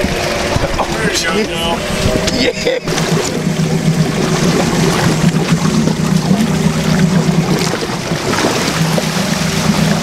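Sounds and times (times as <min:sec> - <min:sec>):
boat engine droning: 0:00.0 - 0:10.0
sea wash: 0:00.0 - 0:10.0
wind noise: 0:01.6 - 0:06.7.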